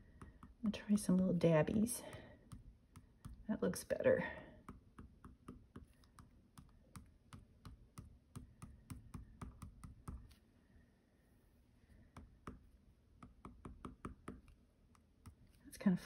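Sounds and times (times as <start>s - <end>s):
drawing tip tapping paper: 0.0s - 0.6s, 2.0s - 3.5s, 4.6s - 10.4s, 12.0s - 15.6s.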